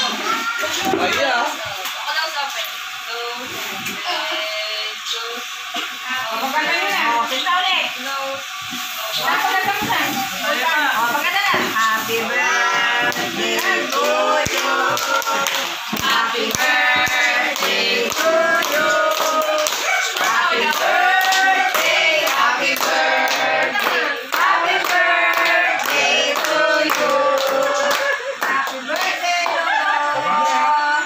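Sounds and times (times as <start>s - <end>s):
group singing a celebration song: 9.2s - 31.0s
people clapping: 12.3s - 30.7s.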